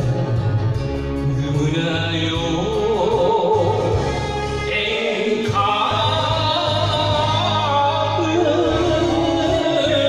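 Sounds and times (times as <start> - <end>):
karaoke backing track: 0.0 - 10.0
man singing into karaoke microphone: 1.0 - 10.0.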